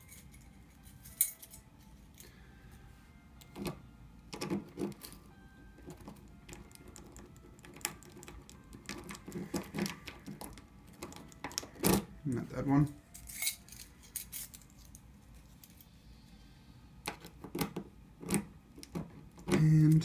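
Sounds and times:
metal keys clicking in a lock: 5.9s - 12.1s, 13.2s - 15.0s
keys jangling: 13.2s - 15.0s.

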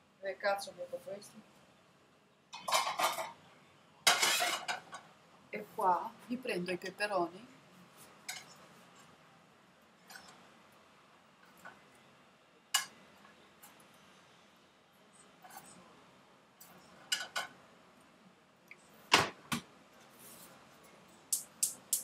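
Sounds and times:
utensil clinking against plate and pan: 2.6s - 3.4s, 4.1s - 5.0s, 17.1s - 17.5s.

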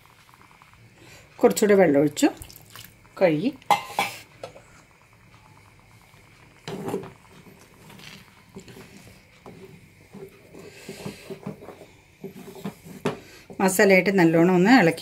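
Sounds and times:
spatula scraping metal pan: 7.8s - 13.3s.

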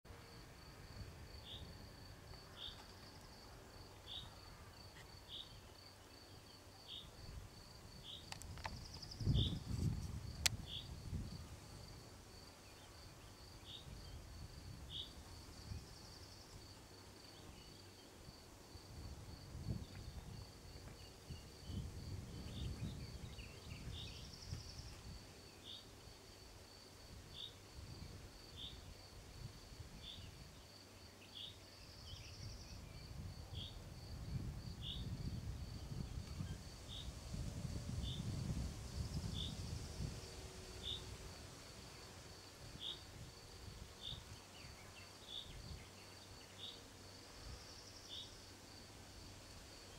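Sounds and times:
insect chirping: 0.2s - 37.3s, 37.9s - 49.9s.

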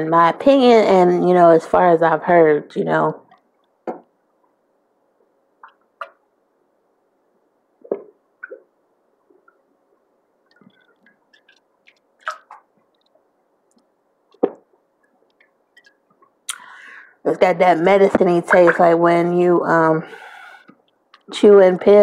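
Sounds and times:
person swallowing a drink: 7.8s - 8.7s, 14.3s - 16.6s
lips smacking: 15.3s - 16.7s.

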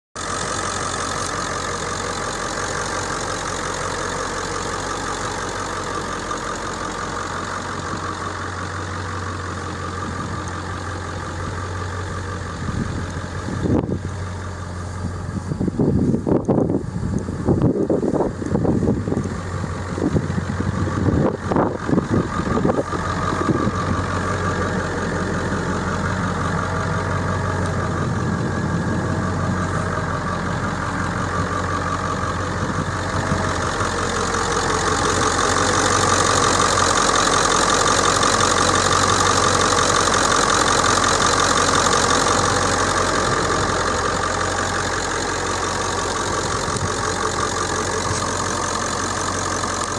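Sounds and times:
diesel engine idling with clatter: 0.2s - 49.9s.

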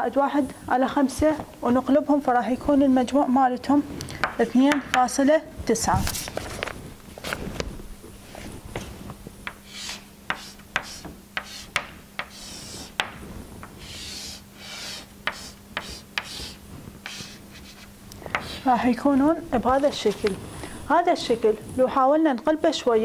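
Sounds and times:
faint steady hum: 0.0s - 23.0s
chalk tapping on chalkboard: 9.4s - 18.7s
chalk scratching strokes: 9.5s - 18.7s.

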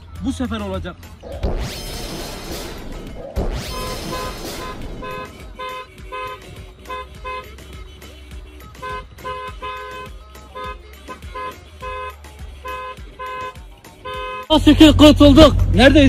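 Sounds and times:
car horns honking: 3.5s - 15.2s.

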